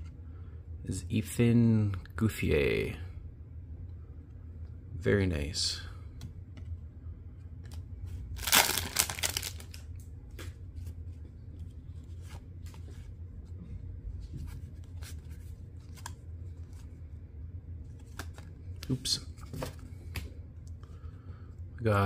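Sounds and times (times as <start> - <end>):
wrapper tearing with crinkly rip: 8.4 - 9.9
cards clicking and sliding: 17.9 - 19.0.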